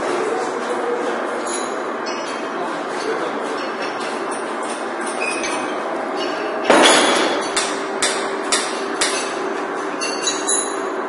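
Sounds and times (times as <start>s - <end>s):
steady machine hum: 0.0s - 11.0s
loud machine clatter: 0.6s - 11.0s
sharp metal knocks: 6.6s - 9.4s.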